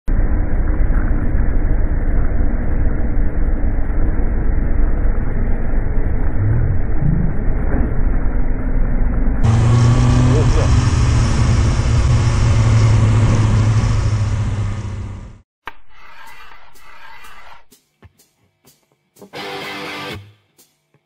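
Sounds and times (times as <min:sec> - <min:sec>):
slowed motorcycle engine rumble: 0:00.1 - 0:15.4.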